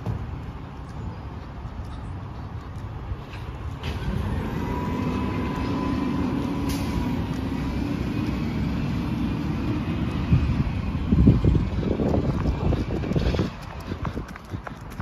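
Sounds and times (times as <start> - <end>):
garbage truck diesel engine rumble: 3.4 - 14.6.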